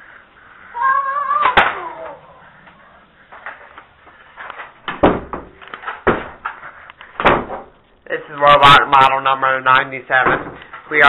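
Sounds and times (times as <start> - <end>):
rustling: 1.4 - 8.8
dull thumps: 4.8 - 7.8.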